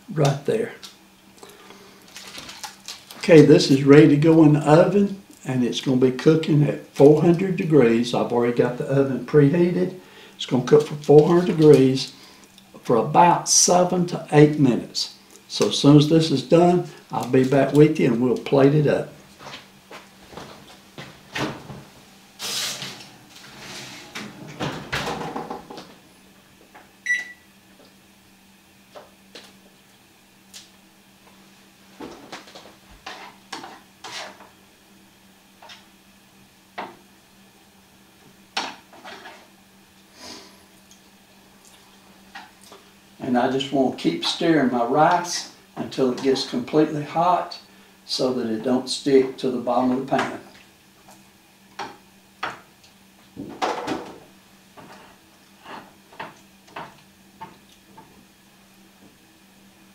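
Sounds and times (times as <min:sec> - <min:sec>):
faint steady hum: 0:00.0 - 0:59.9
spoon scraping rice in a pan: 0:33.0 - 0:34.4.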